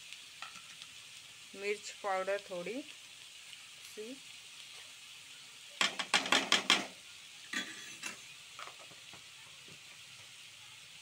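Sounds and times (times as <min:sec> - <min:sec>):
onions sizzling in oil: 0:00.0 - 0:11.0
metal spoon clinking and scraping: 0:07.5 - 0:08.3.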